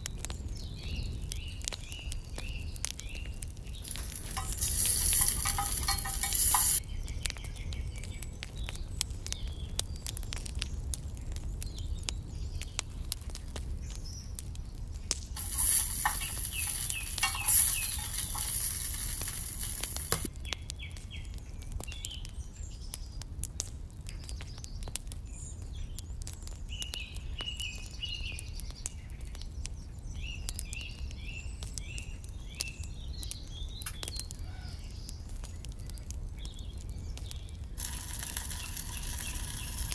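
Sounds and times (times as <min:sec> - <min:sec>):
wood fire crackling and popping: 0:00.0 - 0:39.9
birds chirping: 0:01.0 - 0:07.1, 0:15.4 - 0:20.3, 0:36.5 - 0:39.9
soup simmering: 0:03.8 - 0:06.8, 0:15.4 - 0:20.3, 0:37.8 - 0:39.9.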